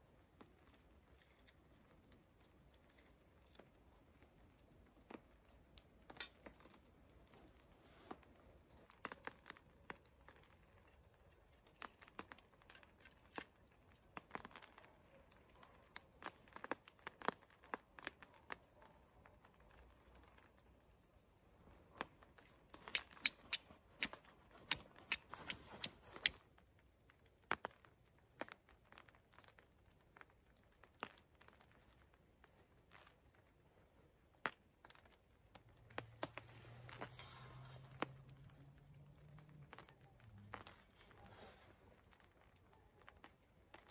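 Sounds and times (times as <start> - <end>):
tinder crumpled and torn by hand: 0.2 - 21.0.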